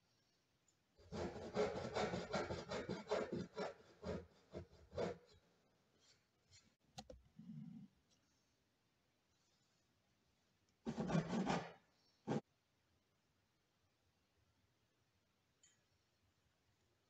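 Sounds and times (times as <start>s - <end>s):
hand saw cutting wood: 1.0s - 5.4s, 10.9s - 12.4s.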